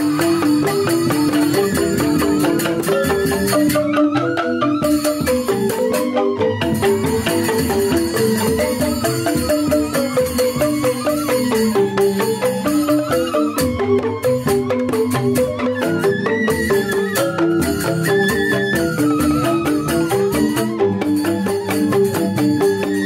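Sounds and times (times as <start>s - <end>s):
bamboo xylophones interlocking melody: 0.0s - 23.0s.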